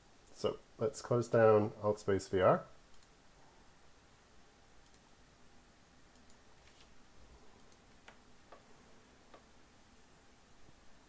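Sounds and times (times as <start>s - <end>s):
computer mouse clicks: 2.9s - 3.2s, 4.8s - 5.1s, 6.1s - 6.5s, 7.6s - 8.7s.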